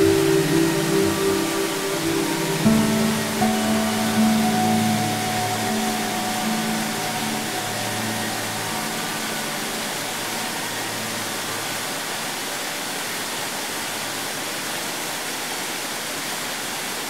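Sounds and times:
background music low notes: 0:00.0 - 0:12.3
waterfall rushing: 0:00.0 - 0:17.0.

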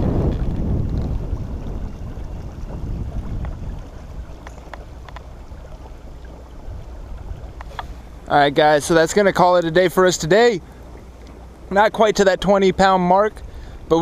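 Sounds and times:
water lapping around kayak: 0:00.0 - 0:14.0
wind rumbling on microphone: 0:00.0 - 0:14.0.

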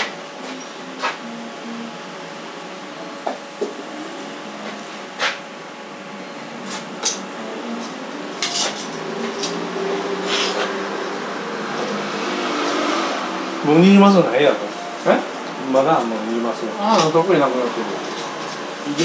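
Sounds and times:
steady background hum: 0:00.0 - 0:19.0
dishes and utensils clinking: 0:06.7 - 0:09.6.

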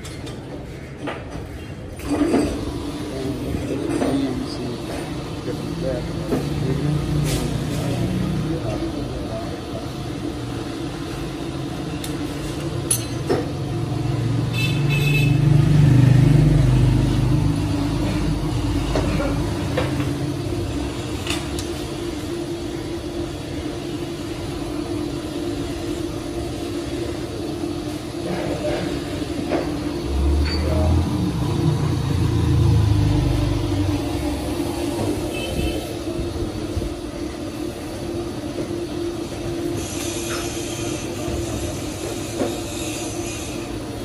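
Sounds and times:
steady machine hum: 0:01.6 - 0:44.0
deeper machine rumble: 0:27.6 - 0:35.4.

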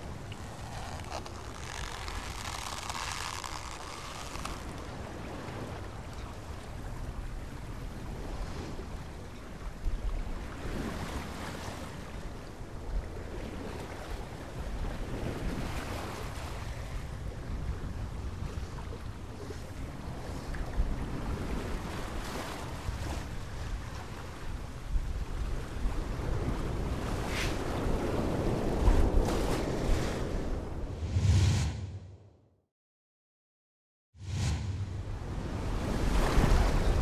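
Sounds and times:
wind noise: 0:09.9 - 0:32.1, 0:34.2 - 0:37.0
steady low rumble: 0:34.2 - 0:36.0
rushing surf: 0:34.2 - 0:37.0.

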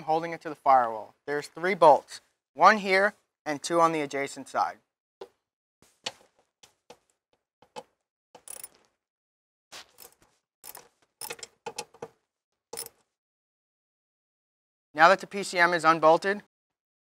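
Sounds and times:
ratchet clicks: 0:08.4 - 0:08.8.

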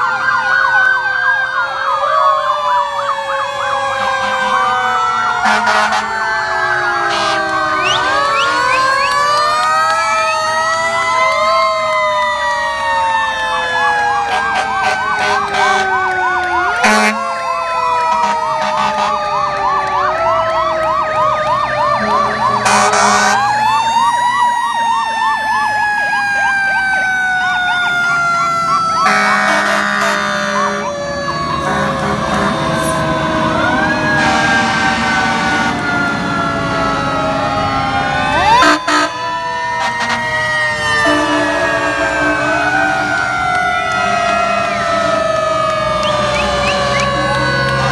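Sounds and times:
electronic siren yelp: 0:00.0 - 0:47.9
fire engine sirens wailing: 0:00.0 - 0:47.9
air horns blasting: 0:04.0 - 0:09.2, 0:14.2 - 0:17.4, 0:18.0 - 0:19.3, 0:21.9 - 0:23.5, 0:29.0 - 0:47.9.

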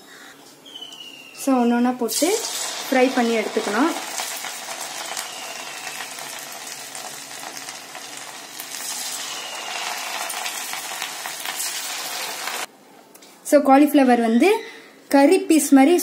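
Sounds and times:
batter deep-frying in hot oil: 0:02.0 - 0:12.7.

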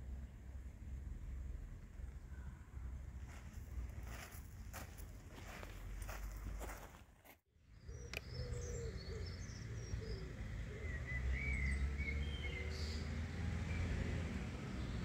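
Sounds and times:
birds chirping: 0:07.6 - 0:15.0.

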